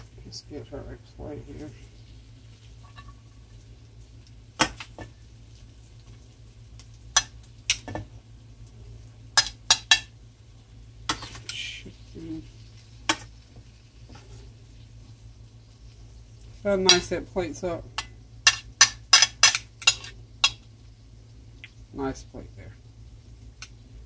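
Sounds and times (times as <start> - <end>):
low steady hum: 0.0 - 24.0
tongs scraping: 2.6 - 3.4, 17.9 - 20.7
tongs clinking on metal and plate: 18.0 - 20.6.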